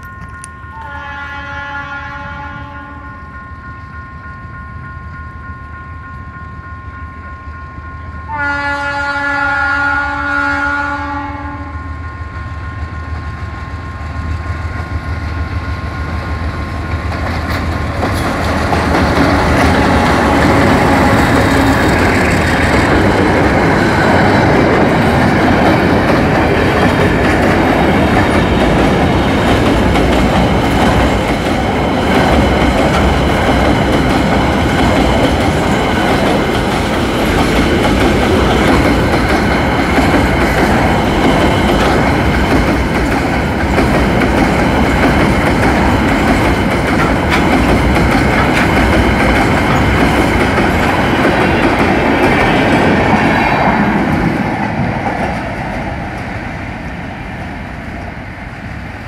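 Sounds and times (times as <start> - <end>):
diesel locomotive passing: 0.0 - 59.0
locomotive horn blast: 0.1 - 3.4, 8.3 - 12.0
train wheels clattering over rail joints: 16.8 - 53.1.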